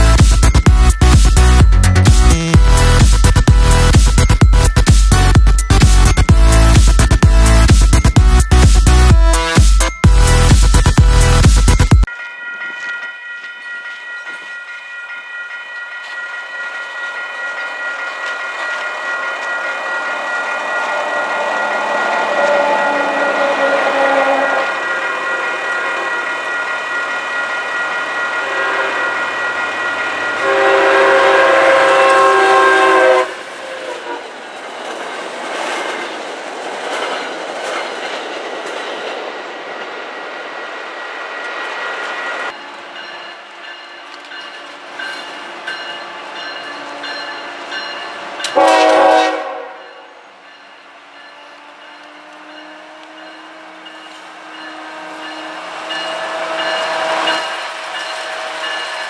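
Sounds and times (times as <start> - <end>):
crossing signal bells ringing: 0.0 - 59.0
locomotive horn blast: 20.9 - 25.2, 28.4 - 29.1, 30.4 - 34.2, 48.5 - 49.9
train horn: 20.9 - 26.1, 28.4 - 29.2, 30.3 - 34.3, 48.5 - 50.1, 51.4 - 58.9
train wheels clicking over rail joints: 33.4 - 40.1.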